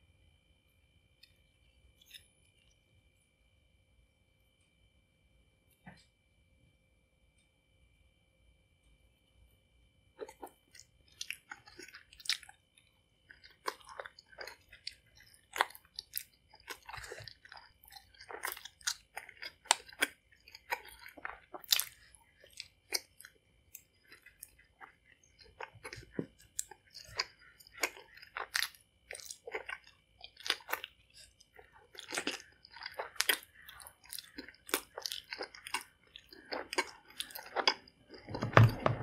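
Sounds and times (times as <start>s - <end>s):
person chewing chewy candy: 10.2s - 39.0s.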